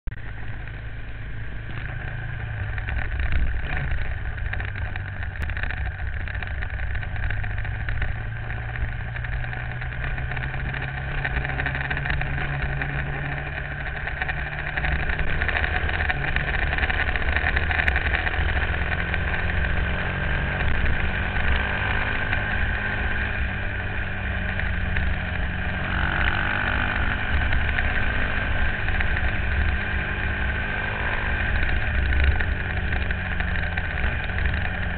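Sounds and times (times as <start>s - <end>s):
motorcycle engine running: 0.1s - 34.9s
wind noise on microphone: 1.5s - 34.9s.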